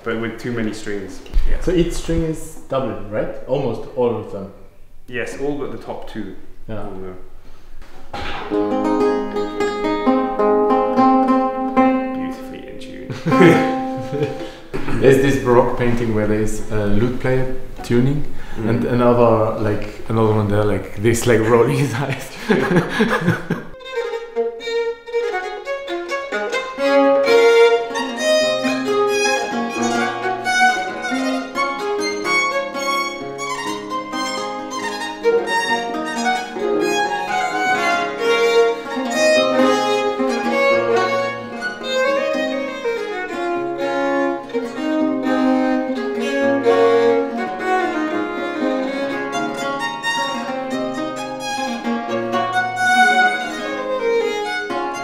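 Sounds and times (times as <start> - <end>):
violin melody: 8.1 - 21.8, 22.6 - 55.0
plucked lute chords: 8.2 - 19.7, 23.8 - 55.0.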